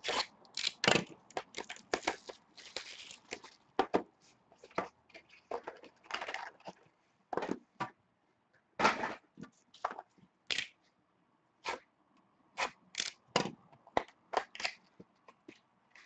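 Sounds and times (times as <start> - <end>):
shrink wrap crinkling and tearing: 0.0 - 3.6.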